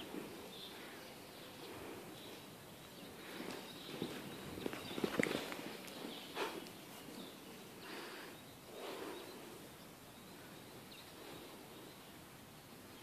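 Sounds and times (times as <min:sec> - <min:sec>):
low background noise: 0:00.0 - 0:13.0
muffled hoofbeats on sand: 0:03.2 - 0:07.4.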